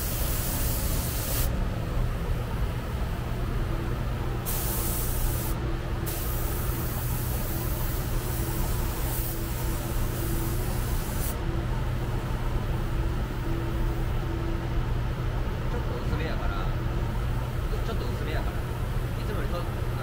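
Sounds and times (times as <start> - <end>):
compressed air hissing: 0.0 - 1.6, 4.4 - 11.4
steady low hum: 0.0 - 20.0.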